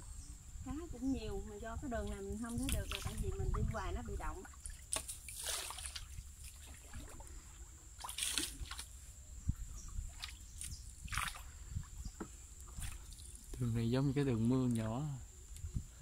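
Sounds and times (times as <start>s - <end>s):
water dripping and trickling: 1.8s - 13.8s
paddle splashing in water: 2.0s - 9.0s, 9.8s - 13.5s.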